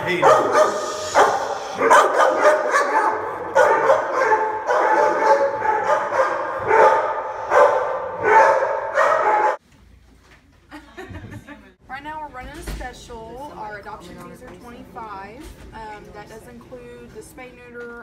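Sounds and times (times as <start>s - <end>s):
dog barking: 0.1s - 9.6s.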